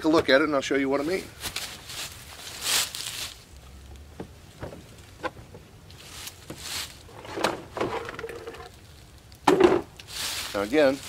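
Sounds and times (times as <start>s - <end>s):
rustle: 0.9s - 11.0s
clunks and scrape: 6.3s - 8.8s.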